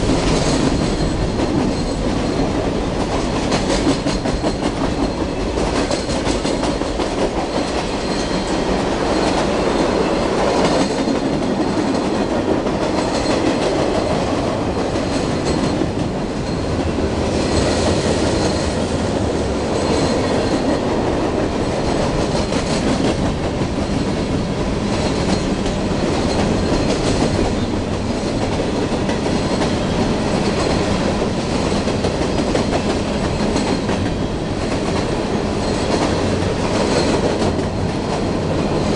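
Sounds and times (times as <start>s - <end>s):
freight train wheels rumbling: 0.0s - 38.9s.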